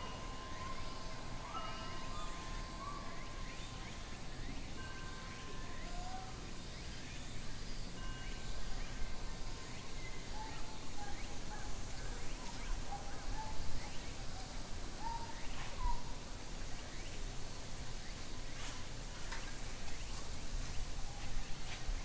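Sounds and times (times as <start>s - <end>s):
faint bird chirps: 0.0s - 17.3s.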